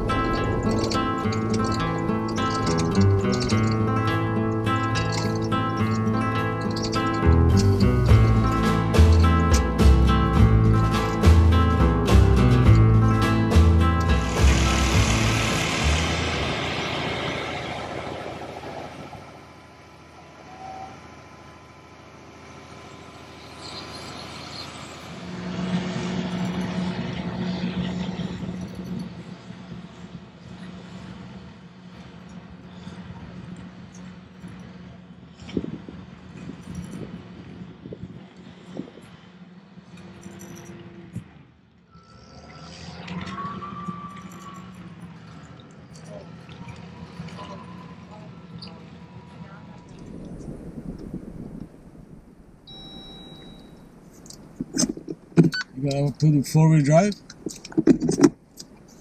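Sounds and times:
high whine: 0:00.0 - 0:30.0, 0:49.9 - 0:55.8
diesel engine hum: 0:00.0 - 0:59.0.

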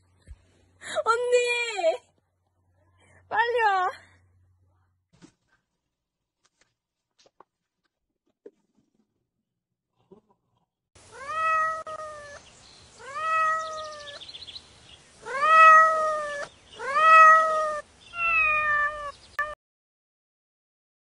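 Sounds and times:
cat meowing: 0:11.1 - 0:12.4, 0:13.0 - 0:14.2, 0:15.2 - 0:19.6.

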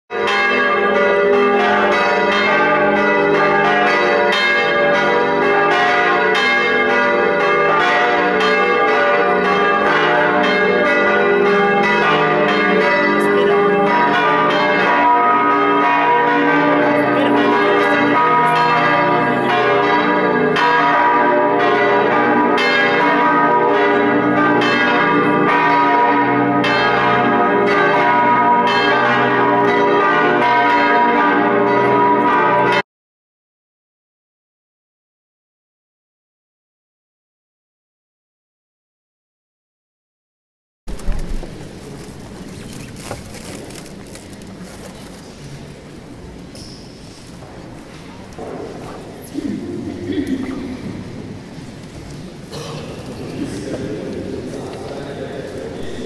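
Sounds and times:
church bells ringing: 0:00.1 - 0:32.8, 0:47.4 - 0:56.0.

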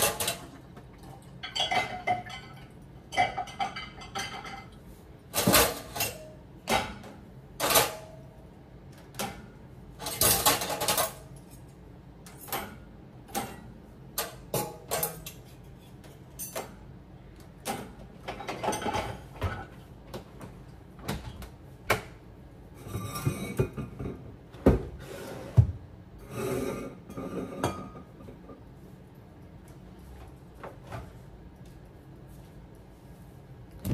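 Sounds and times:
dishes and cutlery clinking: 0:00.0 - 0:08.2, 0:09.2 - 0:16.8, 0:17.6 - 0:19.8, 0:26.3 - 0:28.6.

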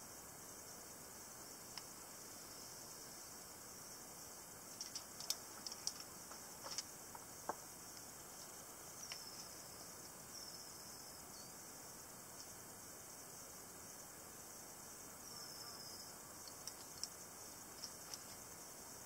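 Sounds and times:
steady high hiss: 0:00.0 - 0:19.0
sharp clicks: 0:04.8 - 0:07.2.

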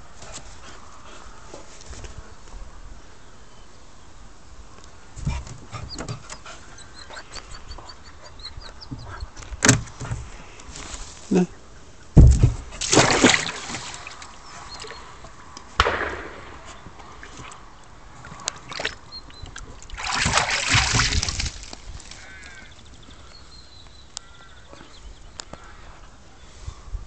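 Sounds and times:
heavy thud: 0:12.2 - 0:12.8
water sloshing: 0:12.2 - 0:16.0, 0:16.6 - 0:23.2
dog splashing in tub of water: 0:12.4 - 0:15.0, 0:18.2 - 0:22.6.

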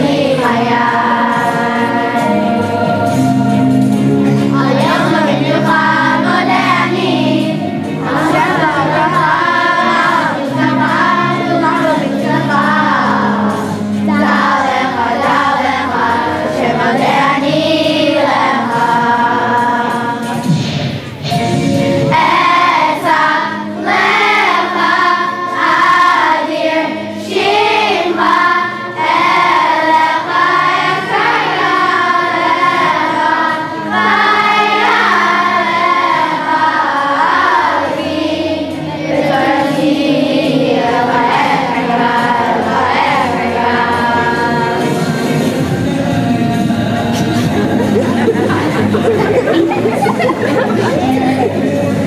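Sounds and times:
children's choir singing: 0:00.0 - 0:52.0.

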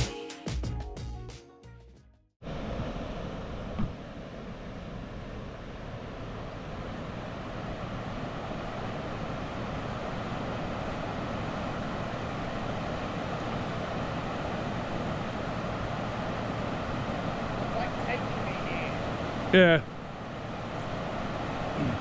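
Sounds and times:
river rushing over bridge: 0:06.0 - 0:22.0.

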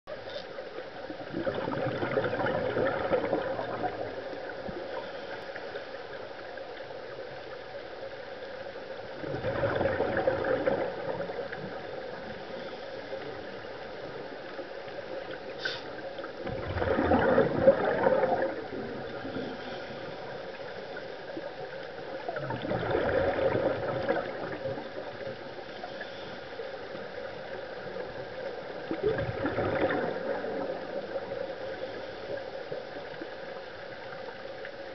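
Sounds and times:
diver exhaling bubbles underwater: 0:01.2 - 0:04.6, 0:09.2 - 0:11.8, 0:16.4 - 0:19.8, 0:22.3 - 0:24.8, 0:28.9 - 0:31.4.

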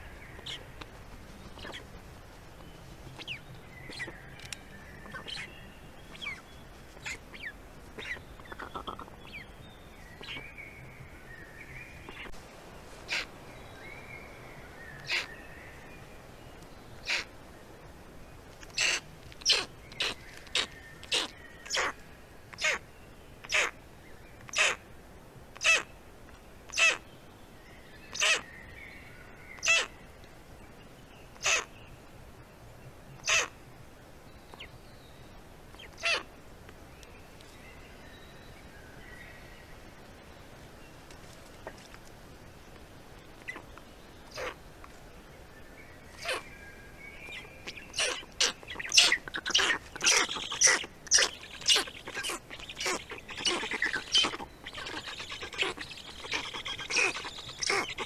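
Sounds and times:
harsh crow-like bird calls: 0:03.2 - 0:05.5, 0:13.1 - 0:13.3, 0:15.0 - 0:15.3, 0:17.0 - 0:17.3, 0:18.7 - 0:22.0, 0:28.1 - 0:28.5, 0:29.6 - 0:30.0, 0:31.4 - 0:31.7, 0:33.2 - 0:33.5, 0:35.8 - 0:36.3, 0:44.3 - 0:44.6, 0:46.2 - 0:46.5, 0:47.3 - 0:58.0.

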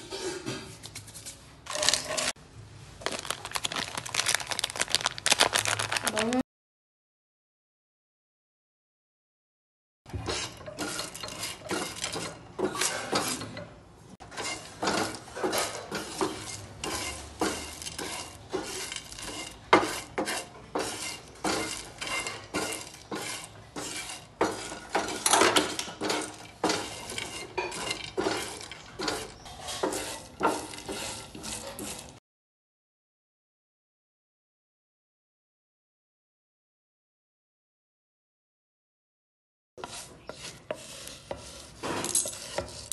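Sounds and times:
wooden spatula scraping spices: 0:10.1 - 0:32.2, 0:39.8 - 0:42.9.

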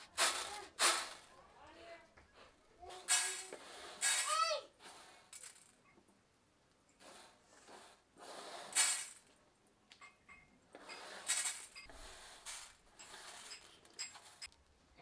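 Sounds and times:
seeds rattling on metal tray: 0:00.0 - 0:01.3, 0:03.0 - 0:04.6, 0:05.2 - 0:05.8, 0:08.7 - 0:09.3, 0:11.0 - 0:14.6.

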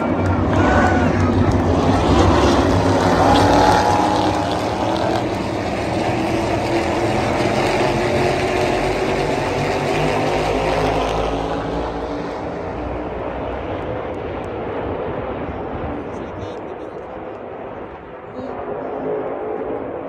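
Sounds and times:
race car engines passing: 0:00.0 - 0:17.6.

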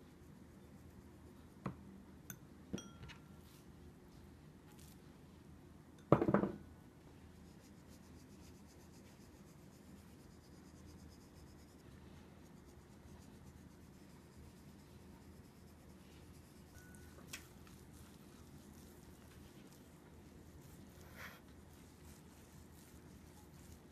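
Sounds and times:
salt sprinkling on meat: 0:16.5 - 0:23.9.

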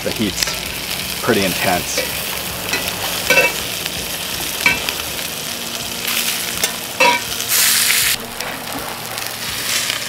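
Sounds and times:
bacon sizzling in a skillet: 0:00.0 - 0:10.0
metal tongs clinking against pan: 0:01.9 - 0:03.7, 0:04.6 - 0:04.9, 0:06.6 - 0:07.4.

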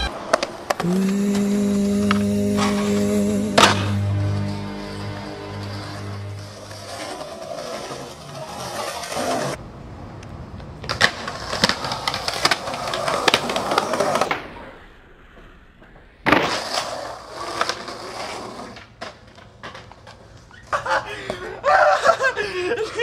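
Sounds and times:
skateboard slapping ground: 0:00.0 - 0:00.9, 0:06.4 - 0:09.7, 0:10.4 - 0:21.6
skateboard wheels rolling on concrete: 0:00.0 - 0:03.8, 0:04.4 - 0:23.0
skateboard clacks: 0:10.5 - 0:14.5.

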